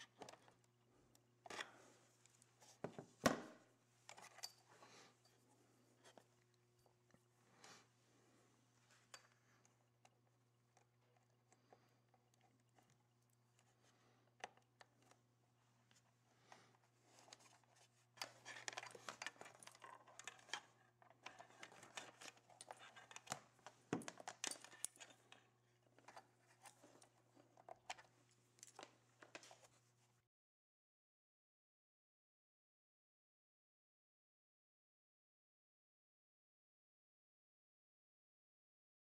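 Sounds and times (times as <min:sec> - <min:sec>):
clicks and knocks of handling: 0:01.4 - 0:04.8, 0:15.9 - 0:29.7
rustling of wires and plastic: 0:10.8 - 0:30.1.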